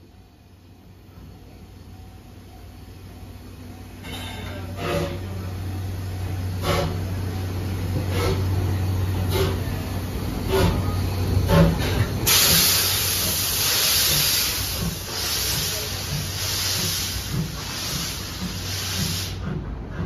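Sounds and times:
train rumbling past: 0.0 - 20.0
steam hissing: 4.0 - 20.0.

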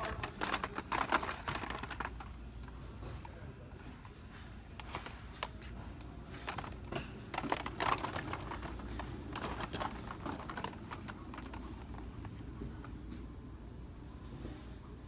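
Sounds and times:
boxed toys clicking on metal hooks: 0.0 - 2.3, 6.4 - 12.0.

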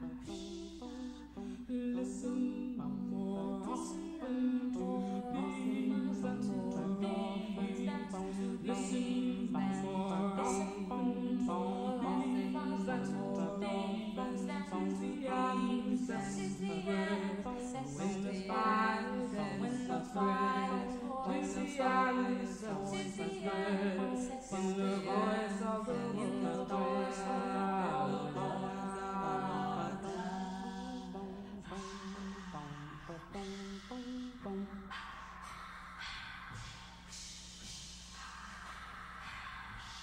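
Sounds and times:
person chanting unaccompanied: 0.0 - 40.0
held low drone note: 29.8 - 36.7.

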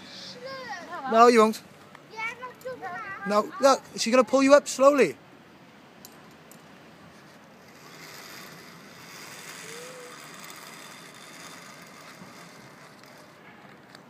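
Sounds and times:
pulleys whirring along a cable: 7.1 - 14.0.

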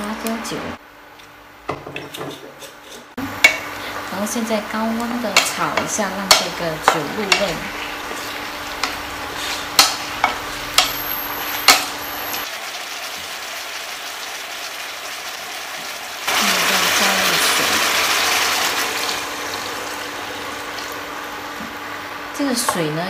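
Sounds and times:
chicken sizzling: 3.1 - 23.0
wooden spatula knocking on wok: 5.3 - 7.6
water hissing in hot pan: 7.0 - 21.5.

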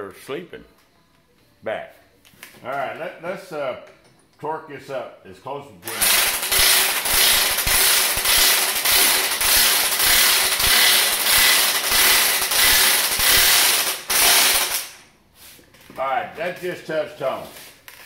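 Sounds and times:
impact wrench hammering: 5.9 - 15.0.

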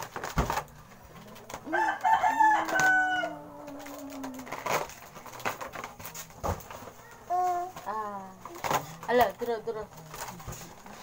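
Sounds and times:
foil balloon crinkling: 0.0 - 11.0
rooster crowing: 1.7 - 3.8.

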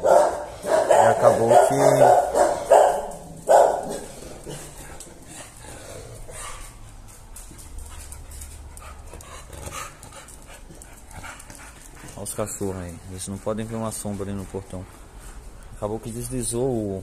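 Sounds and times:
dogs barking: 0.0 - 5.1.

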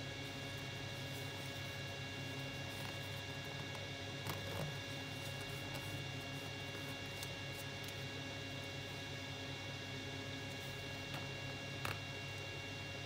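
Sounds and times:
paper crinkling: 0.0 - 9.0
electrical hum: 0.0 - 13.0.

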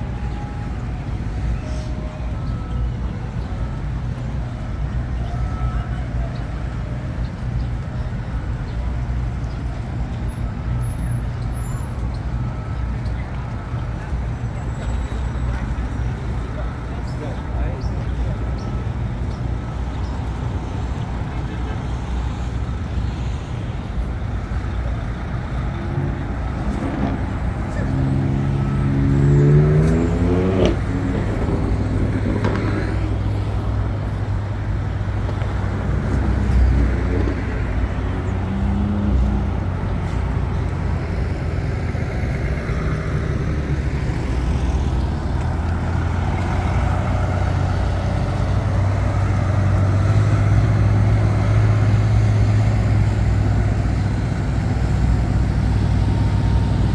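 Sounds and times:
low rumble of traffic engines: 0.0 - 56.9
vehicle engine accelerating: 25.0 - 56.9.

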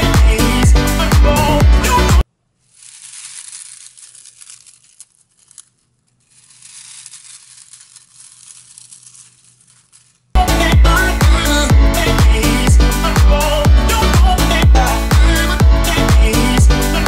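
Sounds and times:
hand crushing crisp kale chips: 2.6 - 10.4.

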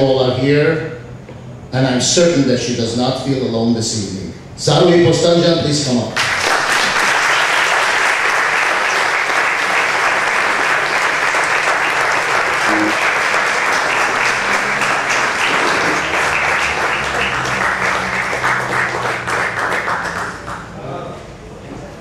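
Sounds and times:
audience applauding: 6.2 - 20.8.

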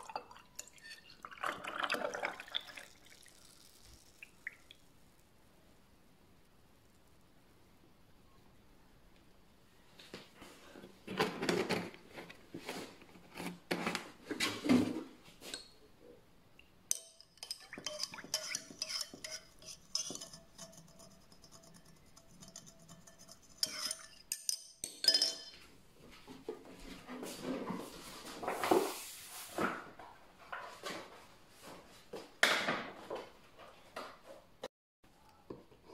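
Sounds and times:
straw stirring drink: 0.0 - 4.4, 16.9 - 24.5.

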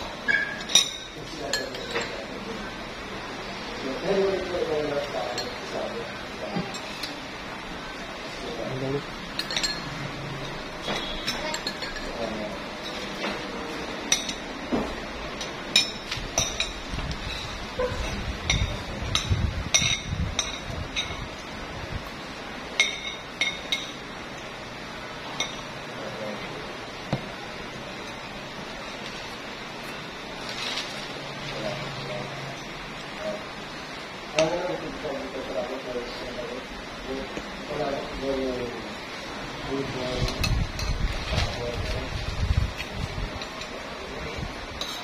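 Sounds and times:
metal spoon clinking on ceramic: 9.4 - 9.9, 11.0 - 12.2.

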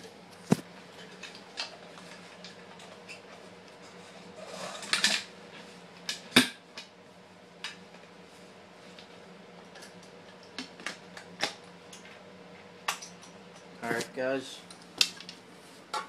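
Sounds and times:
rustling scrape: 3.9 - 4.9.

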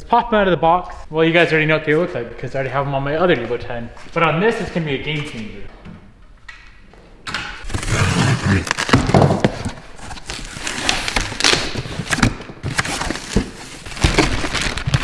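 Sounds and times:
packing material handled: 7.7 - 15.0.

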